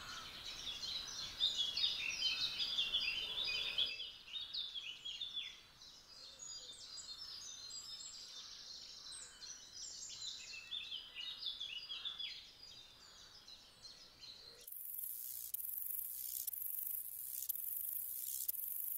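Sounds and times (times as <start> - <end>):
songbirds chirping: 0.0 - 18.9
steady hiss: 14.7 - 18.9.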